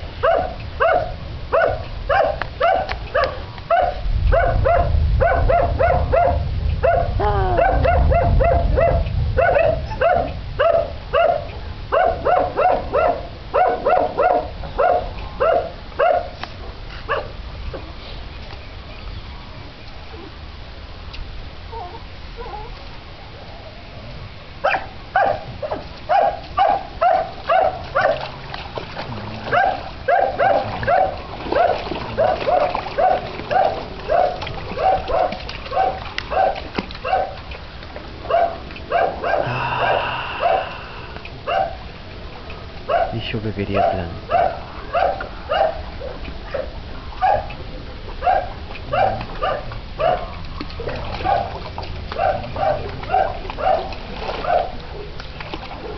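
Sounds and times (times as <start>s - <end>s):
dog barking: 0.2s - 16.4s, 17.1s - 17.3s, 24.6s - 28.3s, 29.5s - 37.4s, 38.3s - 40.8s, 41.5s - 41.8s, 42.9s - 47.6s, 48.2s - 54.8s.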